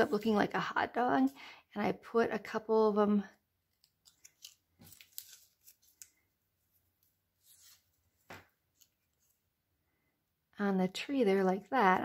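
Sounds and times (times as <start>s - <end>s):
paper rustling: 3.8s - 9.4s.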